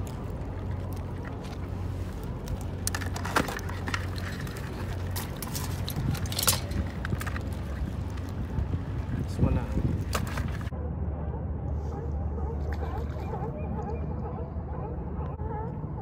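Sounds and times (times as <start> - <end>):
sharp clicks and scrapes: 0.0 - 8.3
wire crab pot rattling: 2.4 - 10.7.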